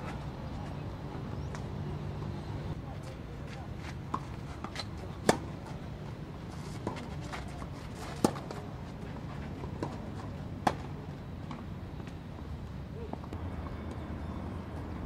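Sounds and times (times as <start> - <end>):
racket hitting tennis ball: 4.1 - 5.6, 6.5 - 8.6.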